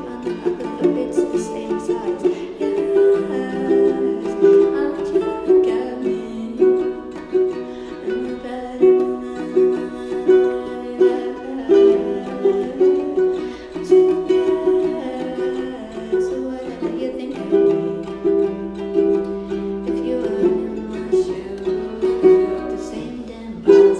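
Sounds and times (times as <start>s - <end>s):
small string instrument strummed: 0.0s - 23.9s.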